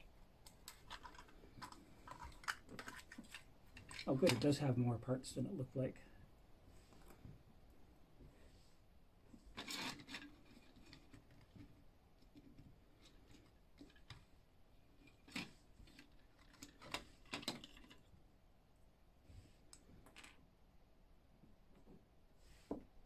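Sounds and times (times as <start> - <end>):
plastic toy parts clicking: 0.4 - 4.4.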